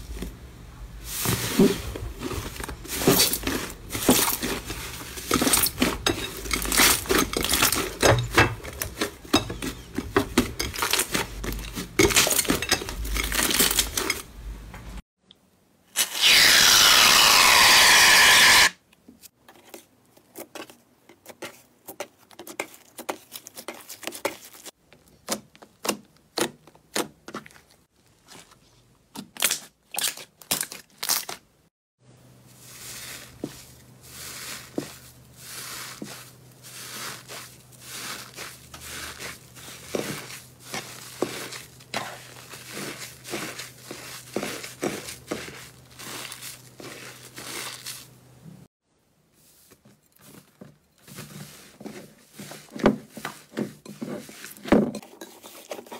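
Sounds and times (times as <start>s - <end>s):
slime crackling and crinkling: 1.1s - 14.1s, 32.5s - 48.2s.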